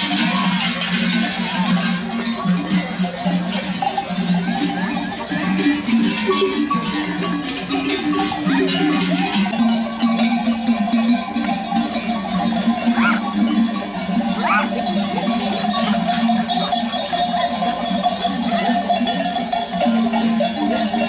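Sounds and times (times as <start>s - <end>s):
animal bells clanking: 0.0s - 21.0s.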